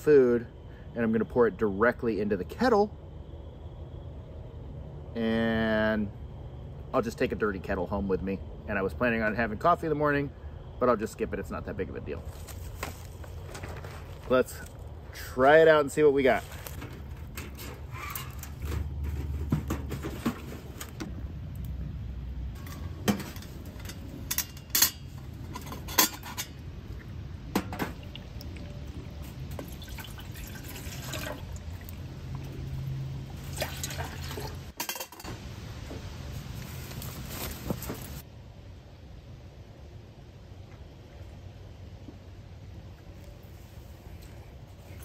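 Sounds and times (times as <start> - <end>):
drink pouring into plastic cup: 29.5 - 32.0.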